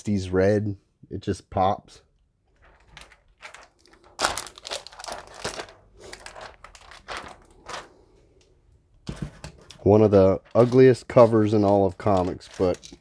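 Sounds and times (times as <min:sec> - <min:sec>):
plastic crinkling and rustling: 0:02.5 - 0:08.2, 0:09.1 - 0:13.0.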